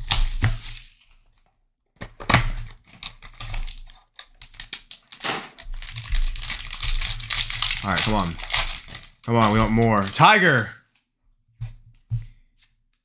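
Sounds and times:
cardboard rustling and snapping: 0:00.0 - 0:10.3.

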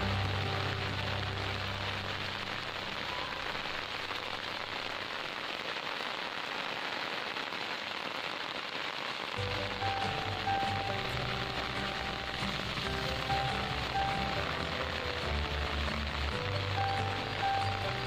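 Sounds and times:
low background music: 0:00.0 - 0:03.1, 0:09.4 - 0:18.0
steady rain falling: 0:00.0 - 0:18.0.

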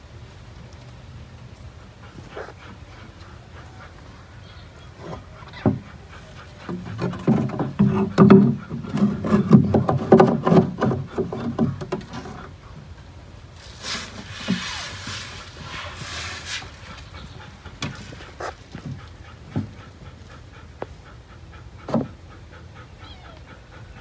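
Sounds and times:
knocks and scraping on wooden box: 0:06.6 - 0:12.6.

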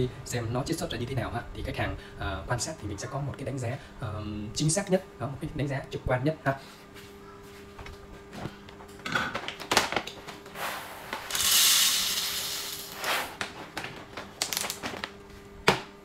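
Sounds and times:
coffee beans pouring: 0:10.6 - 0:13.4
foil bag crinkling: 0:12.8 - 0:15.2.

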